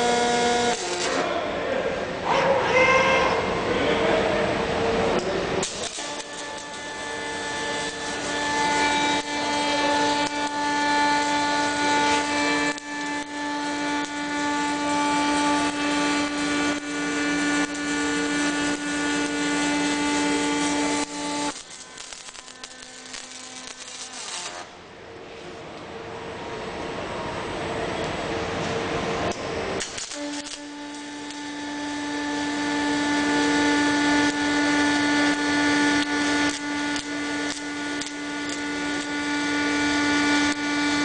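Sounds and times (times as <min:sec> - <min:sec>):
welding arc crackling and hissing: 0:00.0 - 0:01.3, 0:05.2 - 0:24.7, 0:29.2 - 0:41.0.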